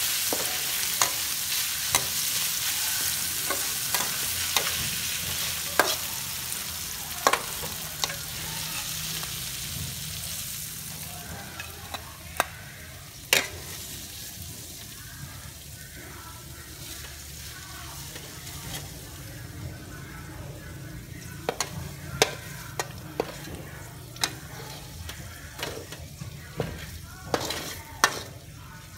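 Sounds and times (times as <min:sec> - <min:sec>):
metal spatula scraping a wok: 0:00.0 - 0:09.6, 0:16.7 - 0:19.3, 0:21.5 - 0:28.6
meat sizzling in a wok: 0:00.0 - 0:28.9
spatula clacking on pan: 0:03.0 - 0:06.5, 0:07.2 - 0:08.4, 0:21.4 - 0:23.6, 0:26.8 - 0:28.4.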